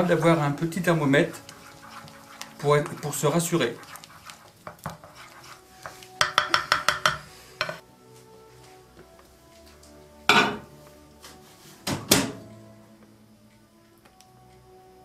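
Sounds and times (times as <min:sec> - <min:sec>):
wooden spoon tapping glass bowl: 0:06.2 - 0:07.8.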